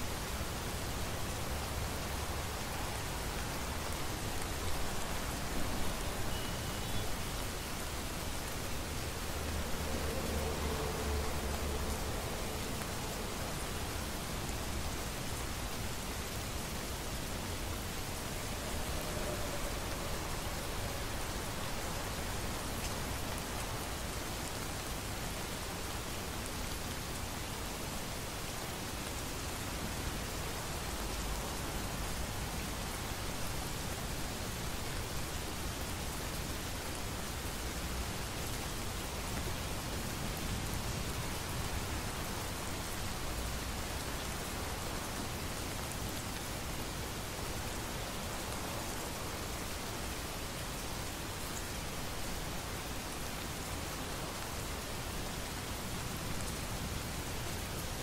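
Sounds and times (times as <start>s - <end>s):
rain falling: 0.0s - 58.0s.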